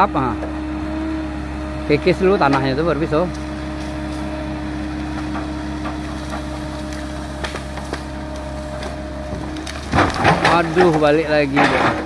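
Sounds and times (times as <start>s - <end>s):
excavator engine and hydraulics: 0.0s - 12.0s
bamboo roots cracking: 5.0s - 12.0s.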